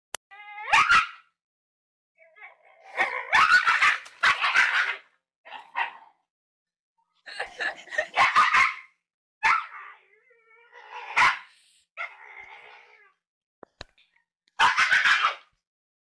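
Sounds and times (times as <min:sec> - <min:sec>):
dog yelping: 0:00.4 - 0:01.3, 0:03.2 - 0:06.0, 0:08.1 - 0:09.9, 0:10.6 - 0:12.2, 0:14.6 - 0:15.5
dog barking: 0:00.7 - 0:01.3, 0:03.3 - 0:06.2, 0:08.0 - 0:09.8, 0:11.1 - 0:12.1, 0:14.6 - 0:15.5.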